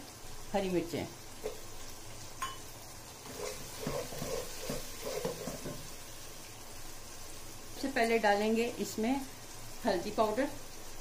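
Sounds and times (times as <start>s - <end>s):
onions sizzling in hot oil: 0.0s - 11.0s
spoon scraping a pot: 3.2s - 5.9s.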